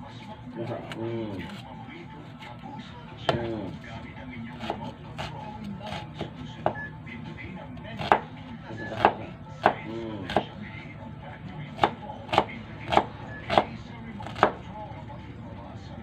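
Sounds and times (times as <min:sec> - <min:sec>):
knife chopping on wooden board: 0:04.6 - 0:06.8, 0:08.0 - 0:08.3, 0:08.9 - 0:10.6, 0:11.8 - 0:14.6.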